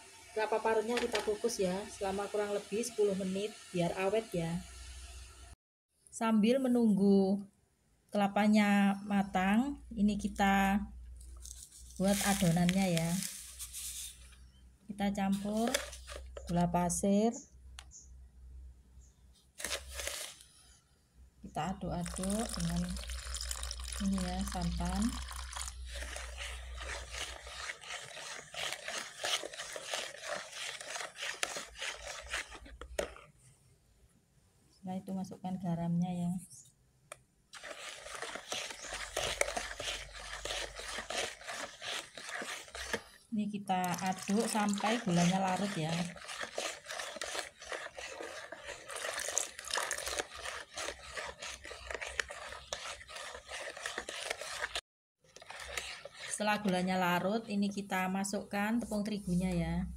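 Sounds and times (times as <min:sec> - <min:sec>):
ladle scraping sugar in bowl: 0:11.4 - 0:14.6, 0:15.2 - 0:16.6, 0:19.6 - 0:20.5, 0:22.0 - 0:33.3, 0:37.6 - 0:57.8.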